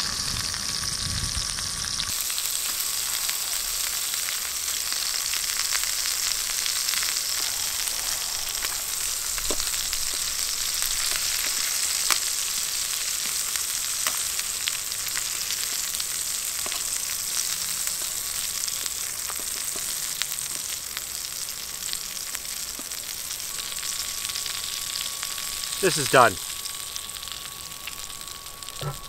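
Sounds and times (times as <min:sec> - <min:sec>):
bacon sizzling in a pot: 0:00.0 - 0:29.0.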